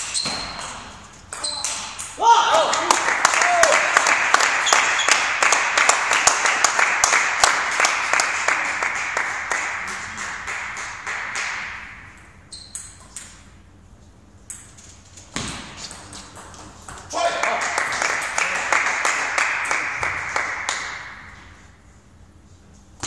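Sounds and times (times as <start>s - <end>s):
spectators clapping: 2.5s - 11.9s, 17.2s - 21.3s.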